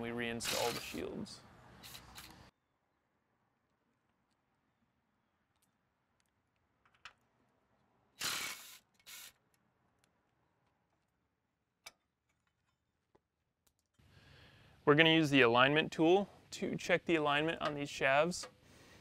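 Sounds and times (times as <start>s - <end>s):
impact driver bursts: 8.2s - 9.3s.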